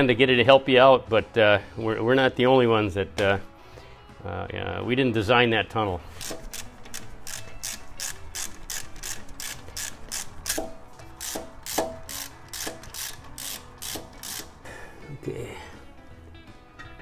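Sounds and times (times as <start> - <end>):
ratchet wrench clicking: 6.1 - 14.6.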